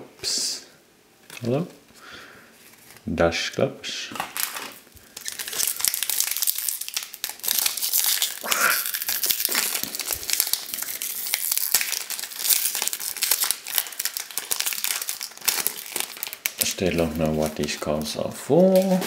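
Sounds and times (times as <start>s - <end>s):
foil wrapper tearing and crinkling: 4.2s - 19.0s.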